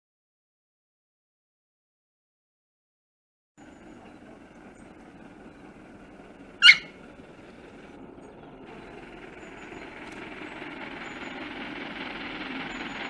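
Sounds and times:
steam locomotive rumble: 3.6s - 13.0s
short loud animal call: 6.6s - 7.0s.

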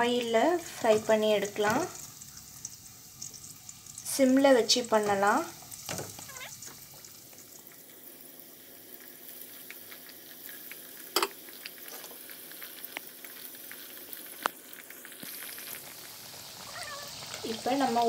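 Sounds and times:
oil sizzling and crackling: 0.0s - 18.0s
sharp pops of frying oil: 1.4s - 7.4s, 9.6s - 17.6s.

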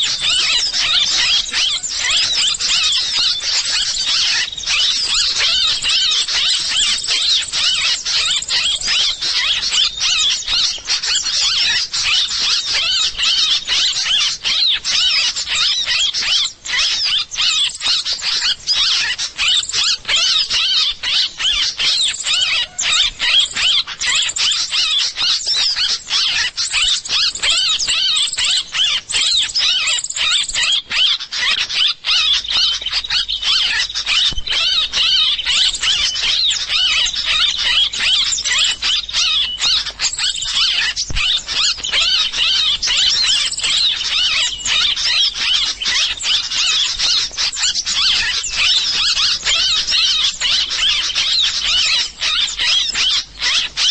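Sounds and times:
bird chirping through speaker: 0.0s - 53.9s.

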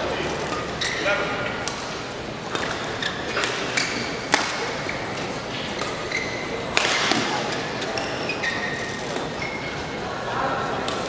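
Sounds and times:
shoes squeaking on court floor: 0.0s - 10.1s
racket hitting shuttlecock: 1.6s - 4.9s, 5.7s - 8.0s.

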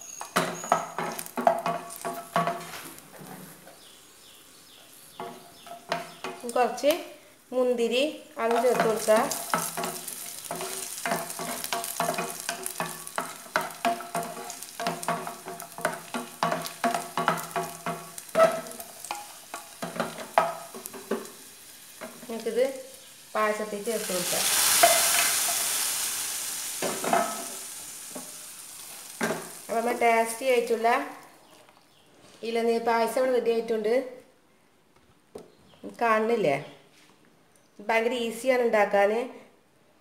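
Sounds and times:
hot fat sizzling: 0.0s - 7.6s, 8.4s - 31.6s
nuts frying in hot fat: 0.0s - 31.8s
spoon scraping a pan: 0.1s - 3.6s, 8.4s - 22.4s, 24.3s - 28.4s.

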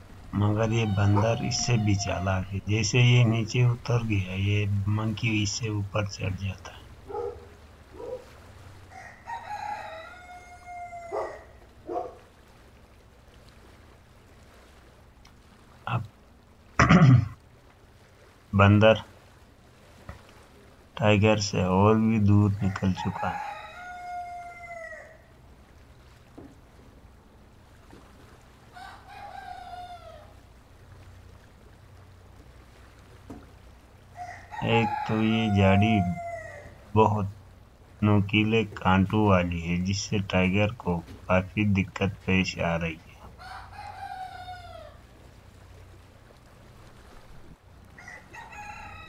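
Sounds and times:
long animal call: 0.3s - 4.6s, 6.4s - 12.3s, 28.8s - 30.4s, 34.2s - 37.0s, 43.1s - 45.1s
rooster crowing: 0.4s - 2.5s, 8.8s - 12.2s, 22.6s - 25.3s, 28.7s - 30.4s, 34.1s - 36.8s, 43.3s - 45.0s, 48.0s - 49.0s.

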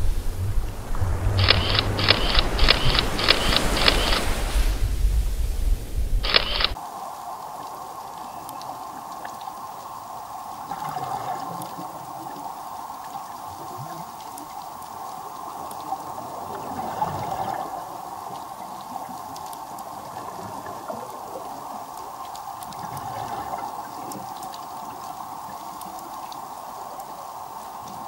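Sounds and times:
underwater watery hiss: 0.0s - 28.0s
faint clicks: 1.4s - 4.5s, 6.2s - 6.8s, 7.6s - 10.0s, 13.0s - 28.0s.

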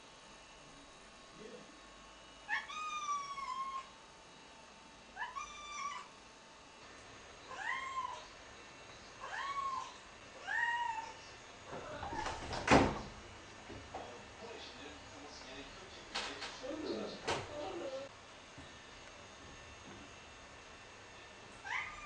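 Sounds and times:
cat meowing: 2.5s - 3.9s, 5.2s - 6.1s, 7.5s - 8.3s, 9.2s - 11.2s, 21.6s - 22.0s.

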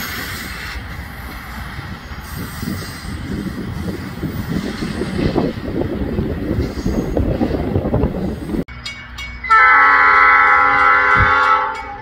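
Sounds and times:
rail car rumbling past: 0.0s - 12.0s
crossing bell dinging: 8.7s - 12.0s
train horn chord: 9.5s - 12.0s.

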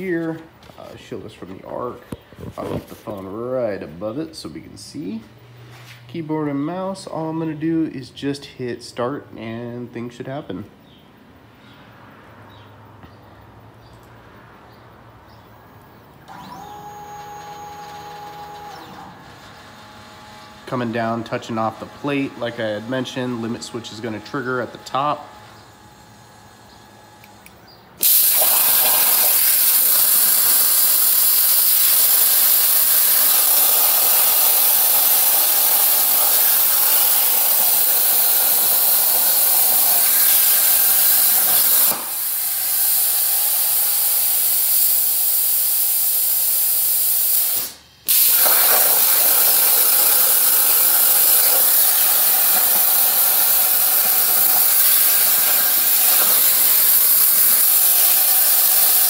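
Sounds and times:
plasma torch hissing: 28.0s - 59.0s.

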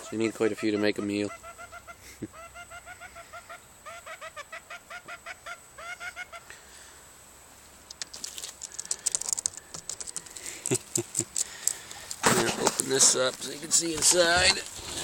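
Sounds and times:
chickens clucking: 0.0s - 6.6s
scratchy clicks and rustles: 7.8s - 15.0s.

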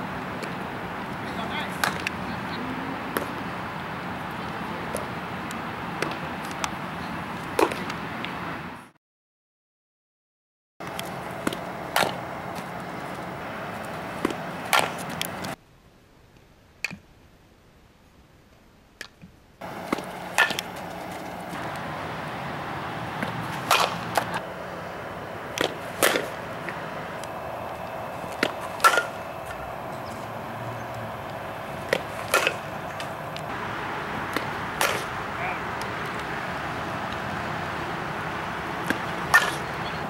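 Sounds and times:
outdoor field noise: 0.0s - 9.0s, 10.8s - 40.0s
bat cracking against ball: 1.7s - 2.2s, 10.8s - 15.6s, 19.6s - 39.8s.

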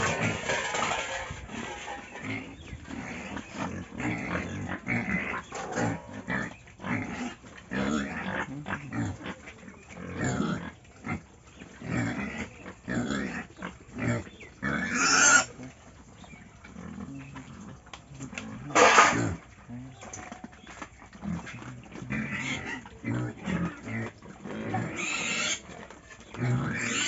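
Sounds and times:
loud harsh pig noise: 0.0s - 11.2s, 11.8s - 15.7s, 18.3s - 19.6s, 21.2s - 25.7s, 26.4s - 27.0s
pigs grunting: 0.0s - 27.0s.

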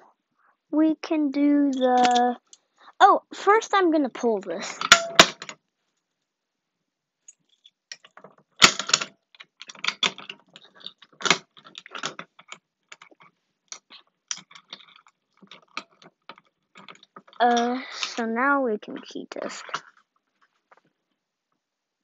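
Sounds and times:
plastic and metal clacks: 7.9s - 18.2s.

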